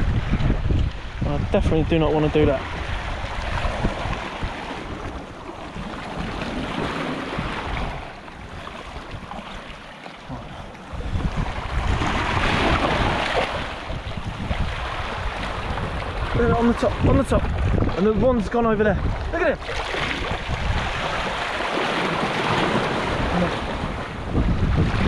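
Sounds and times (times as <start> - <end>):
waves washing over rocks: 0.0 - 25.0
wind rumbling on microphone: 0.0 - 25.0.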